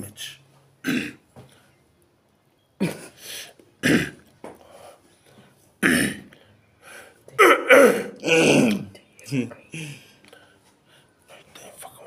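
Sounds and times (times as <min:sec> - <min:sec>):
man coughing: 0:00.8 - 0:01.2, 0:02.8 - 0:03.2, 0:03.8 - 0:04.2, 0:05.8 - 0:06.3, 0:07.4 - 0:08.9.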